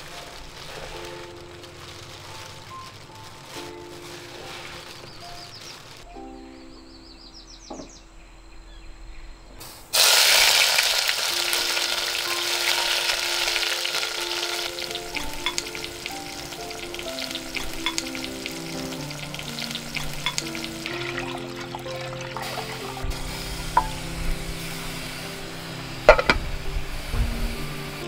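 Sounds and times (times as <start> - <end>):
tomatoes sizzling in hot oil: 9.9 - 28.0
water poured into pot: 10.0 - 24.2
oil popping: 10.0 - 24.6, 26.0 - 27.5.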